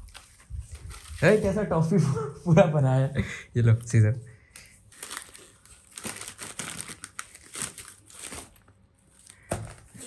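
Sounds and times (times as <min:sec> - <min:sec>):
wrapping paper tearing and crumpling: 0:00.0 - 0:01.9, 0:04.6 - 0:10.0.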